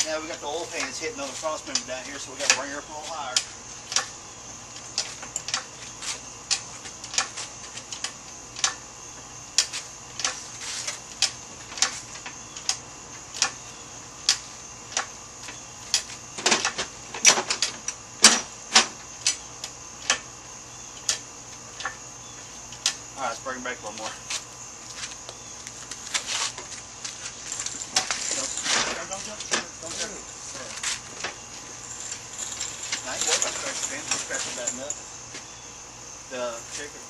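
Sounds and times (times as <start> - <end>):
hydraulic hoist pump clicking: 6.5 - 8.8.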